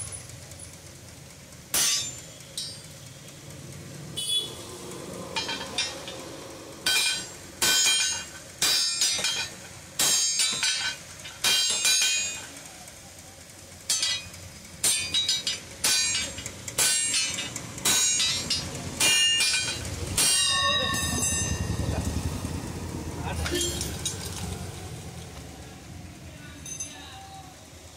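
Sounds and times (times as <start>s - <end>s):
hammer clanging on anvil: 1.8s - 2.9s, 5.3s - 6.3s, 6.9s - 12.5s, 13.9s - 21.7s, 23.4s - 24.2s.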